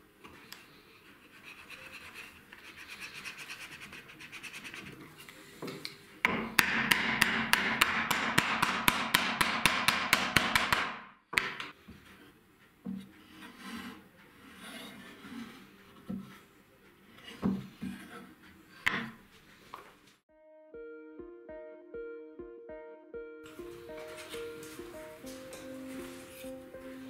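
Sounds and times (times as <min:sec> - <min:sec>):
rubber mallet tapping wood: 0:06.2 - 0:11.8.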